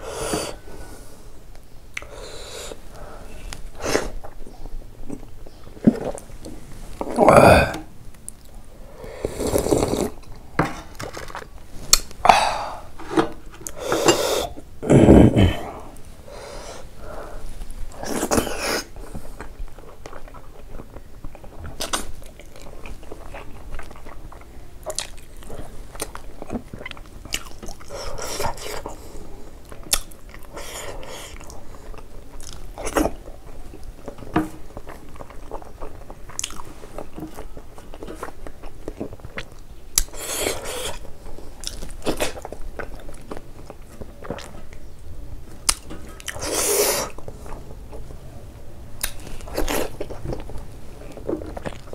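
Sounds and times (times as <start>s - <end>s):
person slurping soup: 8.9s - 10.2s, 12.5s - 16.9s, 40.1s - 41.0s, 46.3s - 47.2s
person chewing food: 15.4s - 44.9s, 45.5s - 48.2s, 49.0s - 51.9s.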